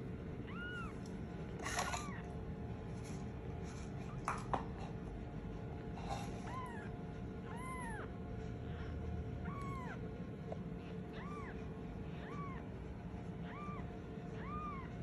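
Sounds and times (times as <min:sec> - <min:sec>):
kitten mewing: 0:00.4 - 0:02.4, 0:06.0 - 0:08.2, 0:09.4 - 0:15.0.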